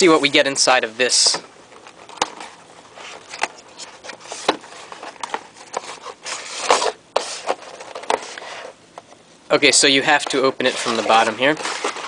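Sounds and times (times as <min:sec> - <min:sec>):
cardboard box handling: 0:10.7 - 0:12.0.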